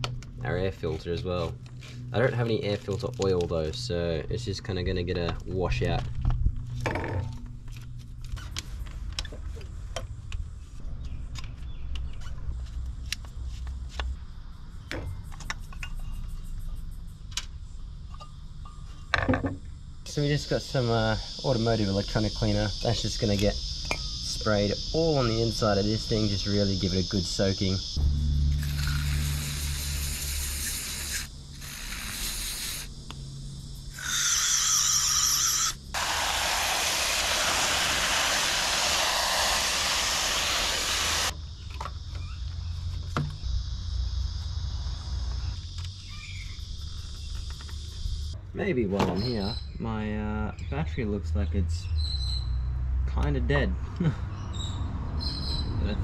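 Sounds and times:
garden hose water jet: 0:28.5 - 0:33.2, 0:33.9 - 0:41.4
aerosol spray hisses: 0:28.6 - 0:32.9, 0:35.5 - 0:41.3.

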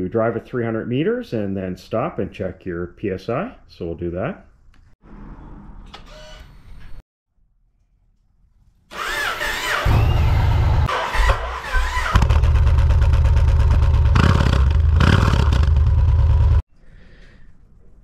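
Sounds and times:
motorcycle engine starting and running: 0:08.9 - 0:16.6.

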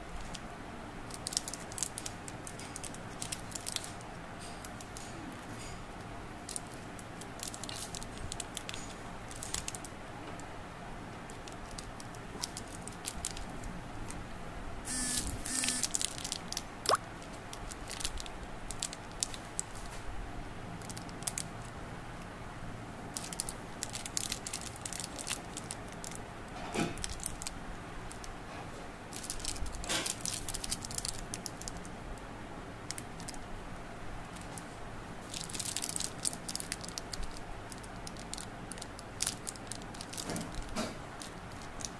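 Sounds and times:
plastic candy wrappers crinkling: 0:01.0 - 0:05.6, 0:06.4 - 0:09.9, 0:11.1 - 0:14.2, 0:15.6 - 0:20.0, 0:20.8 - 0:21.8, 0:23.1 - 0:26.2, 0:26.8 - 0:28.3, 0:29.1 - 0:32.0, 0:32.9 - 0:33.5, 0:34.2 - 0:41.9.

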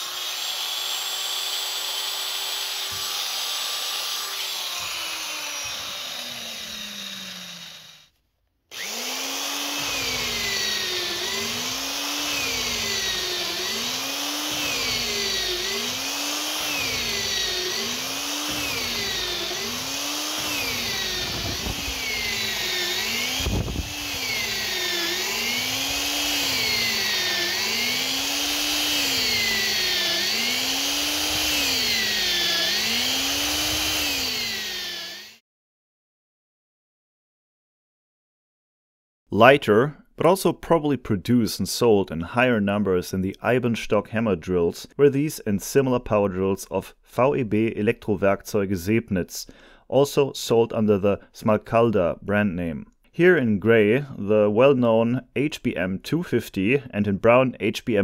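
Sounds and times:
drill boring into wood: 0:00.0 - 0:08.1, 0:08.7 - 0:35.4
drill motor winding down: 0:00.0 - 0:08.1, 0:08.7 - 0:35.4.

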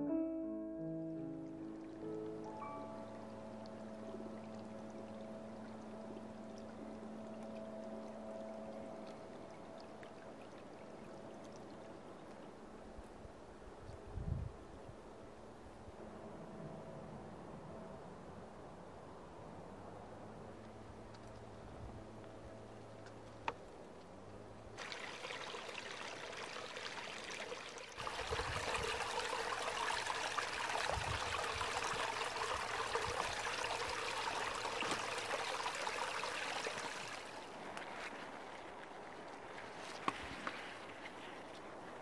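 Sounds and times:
stream water rushing: 0:24.8 - 0:42.0.

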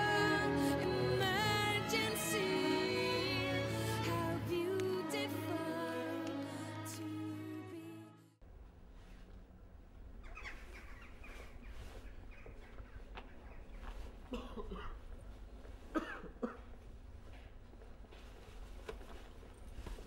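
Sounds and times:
loud cough-like sounds: 0:14.3 - 0:15.0, 0:15.9 - 0:16.7.

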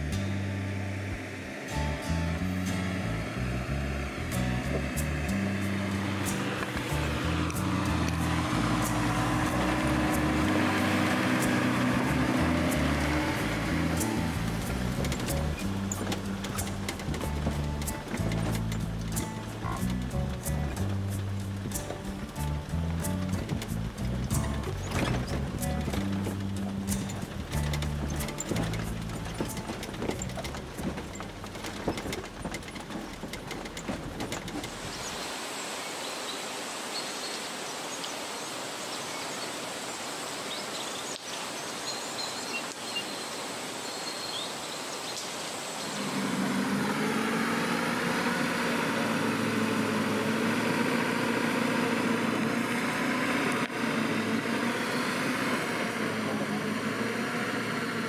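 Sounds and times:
vehicle engine running: 0:00.0 - 0:35.2, 0:45.9 - 0:58.0
vehicle rattling over rough track: 0:00.0 - 0:35.3, 0:45.8 - 0:58.0
faint bird chirps: 0:40.4 - 0:46.1.

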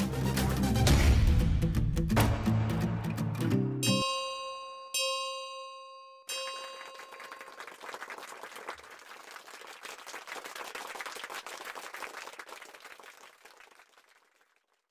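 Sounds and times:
crowd applause: 0:06.5 - 0:14.9.

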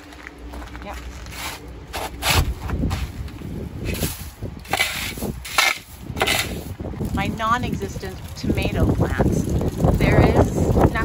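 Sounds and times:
metal shovel scraping hailstones: 0:03.8 - 0:11.0.

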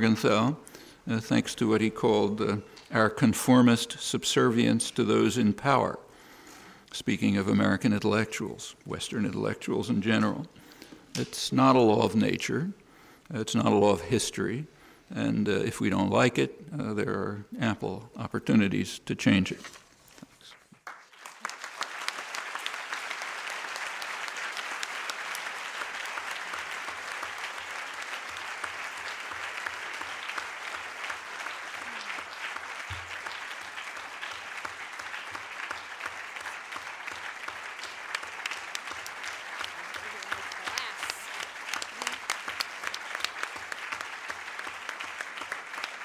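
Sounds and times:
audience applauding: 0:20.7 - 0:46.0.

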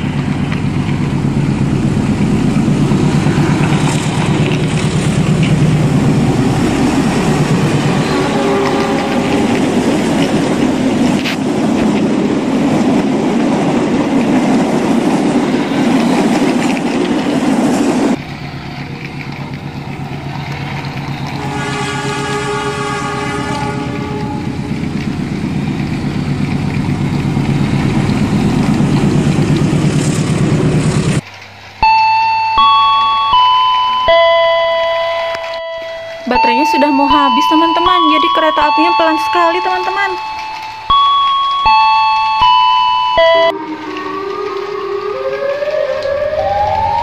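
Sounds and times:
short electronic horn: 0:08.0 - 0:09.6, 0:21.4 - 0:24.6
person talking: 0:36.2 - 0:40.3.

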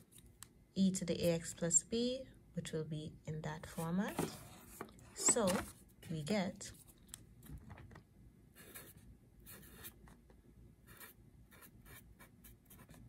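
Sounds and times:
pen scratching on paper: 0:08.6 - 0:10.0, 0:10.8 - 0:13.0.

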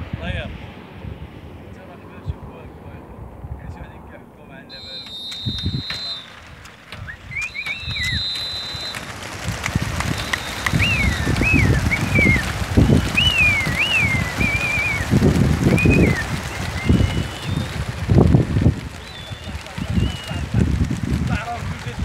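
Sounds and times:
whistled notes rising and falling: 0:04.5 - 0:18.3, 0:19.0 - 0:20.6
pigeon wings flapping: 0:04.7 - 0:22.0.

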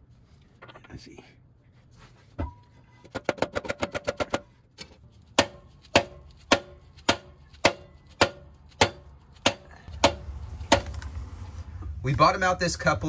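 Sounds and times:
hammer tapping metal: 0:05.4 - 0:11.0.

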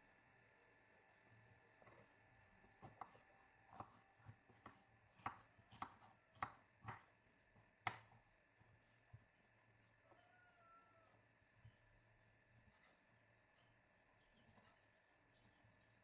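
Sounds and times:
knife chopping on wooden board: 0:02.7 - 0:08.3.

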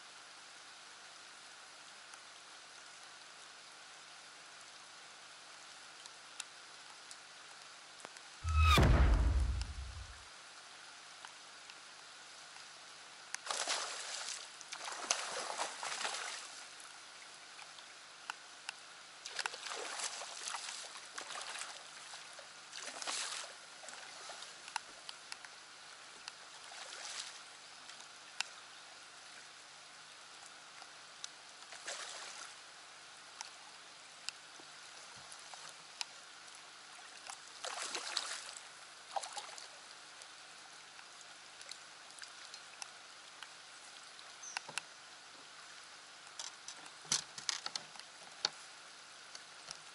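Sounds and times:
rain on boat and lake: 0:00.0 - 0:08.4, 0:10.2 - 0:49.9.

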